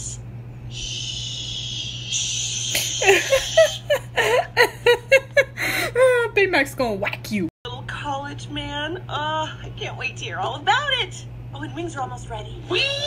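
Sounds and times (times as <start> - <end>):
high-pitched giggling laughter: 2.7 - 6.2.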